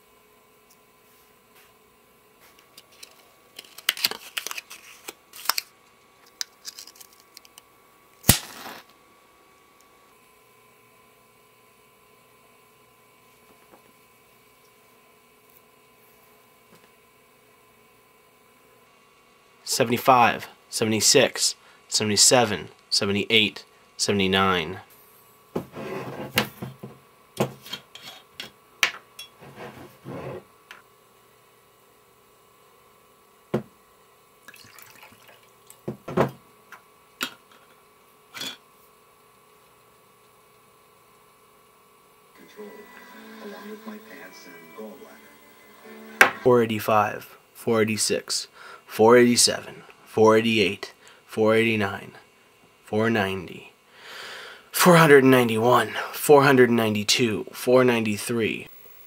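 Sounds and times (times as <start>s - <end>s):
matchbook crinkling: 2.6s - 5.7s, 6.3s - 7.6s
match striking and flaring: 8.2s - 8.9s.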